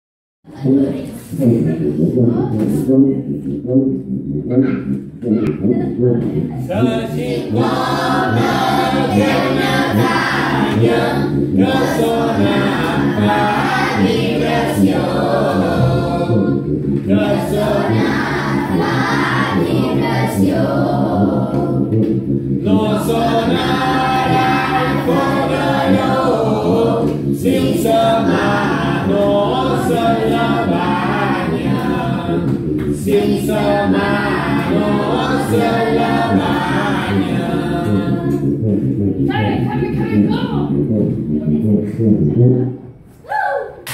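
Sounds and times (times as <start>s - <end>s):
children singing unaccompanied: 4.5s - 38.5s.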